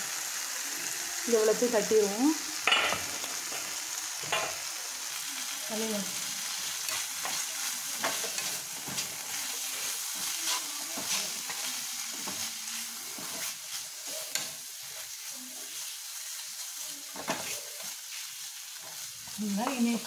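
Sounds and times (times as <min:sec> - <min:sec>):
chillies sizzling in a pan: 0:00.0 - 0:20.0
spatula scraping a pan: 0:06.6 - 0:16.0.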